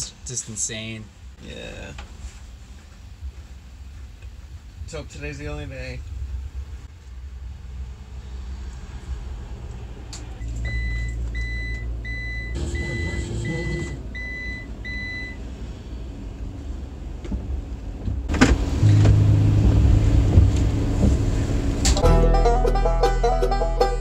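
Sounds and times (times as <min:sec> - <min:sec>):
low rumble inside car: 0:09.6 - 0:22.0
car warning chime beeping: 0:10.6 - 0:15.4.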